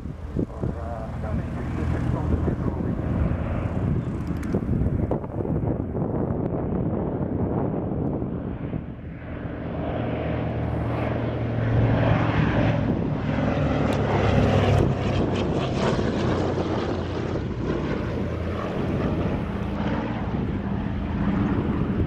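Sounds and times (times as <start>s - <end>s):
propeller plane flying past: 0.0s - 22.0s.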